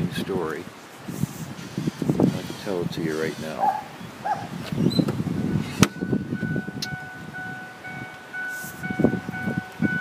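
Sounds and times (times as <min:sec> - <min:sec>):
high electronic warning chime: 0:05.9 - 0:10.0.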